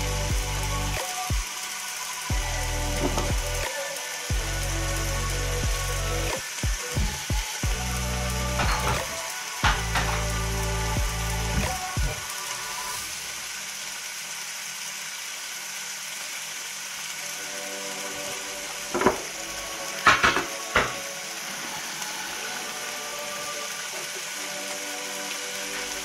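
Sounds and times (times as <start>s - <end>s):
food sizzling in a pan: 0.0s - 26.0s.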